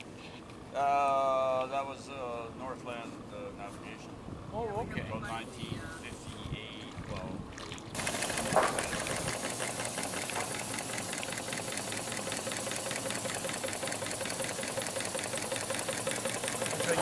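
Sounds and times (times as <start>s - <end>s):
miniature steam engine chuffing: 8.0s - 17.0s.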